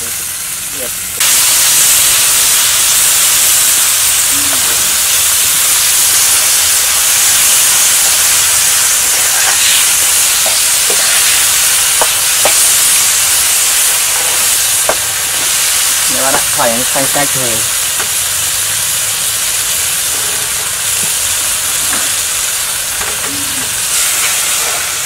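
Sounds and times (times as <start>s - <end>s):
insects sizzling in a wok: 0.0s - 25.0s
metal spatula scraping pan: 9.1s - 13.0s, 20.1s - 20.9s.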